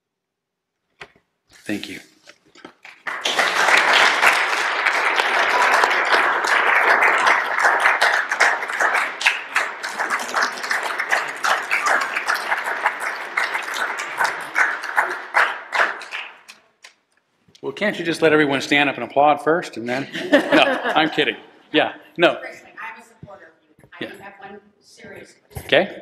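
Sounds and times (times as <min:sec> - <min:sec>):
congregation applauding: 0:02.6 - 0:16.9, 0:20.2 - 0:21.4.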